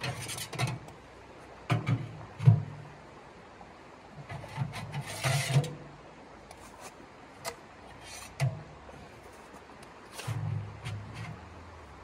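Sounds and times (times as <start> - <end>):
scraping rustle: 0.0 - 1.0, 4.2 - 5.8, 6.5 - 11.7.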